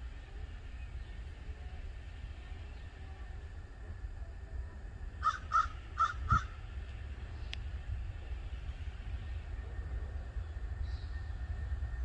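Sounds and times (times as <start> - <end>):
low steady rumble: 0.0 - 12.0
harsh crow-like bird calls: 5.2 - 6.7.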